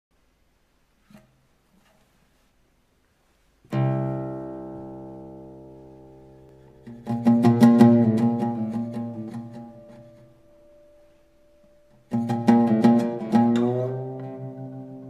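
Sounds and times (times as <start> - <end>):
plucked string instrument: 3.7 - 15.0.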